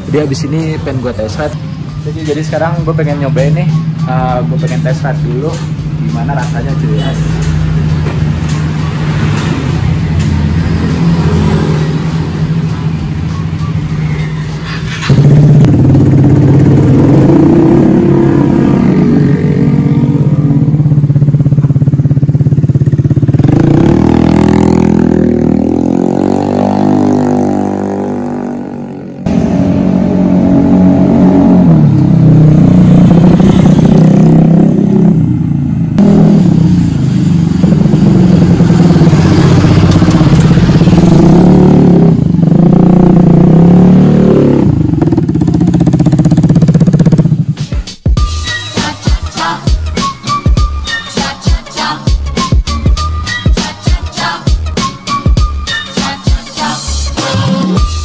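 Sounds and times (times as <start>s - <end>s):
scooter engine revving: 14.6s - 47.6s.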